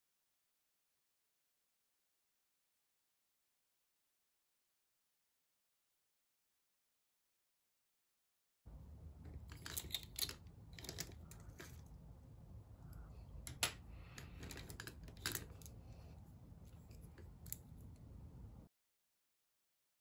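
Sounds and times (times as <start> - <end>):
faint low hum: 8.7 - 18.7
brushes clicking in a pot: 9.2 - 11.9, 13.4 - 15.8.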